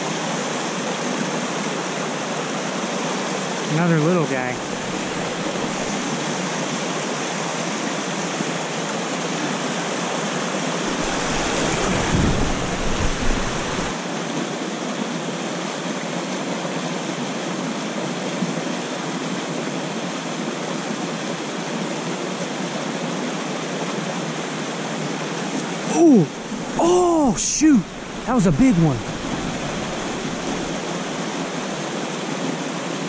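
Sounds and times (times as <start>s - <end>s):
creek water rushing: 0.0s - 33.0s
waterfall pouring into pool: 10.5s - 23.5s, 25.9s - 33.0s.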